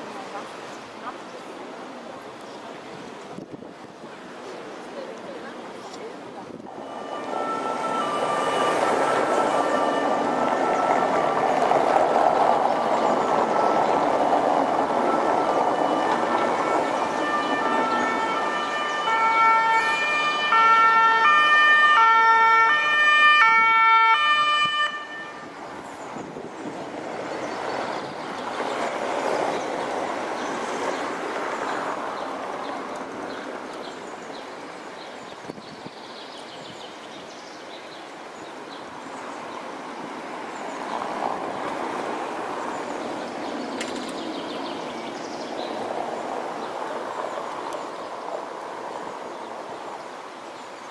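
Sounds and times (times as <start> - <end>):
two-tone emergency siren: 6.8 - 11.6, 15.0 - 25.5.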